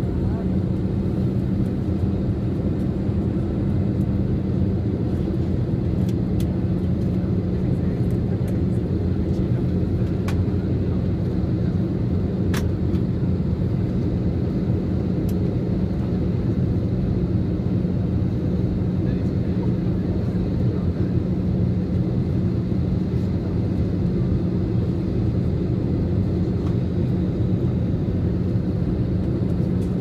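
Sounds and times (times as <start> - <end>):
airplane cabin engine drone: 0.0 - 30.0.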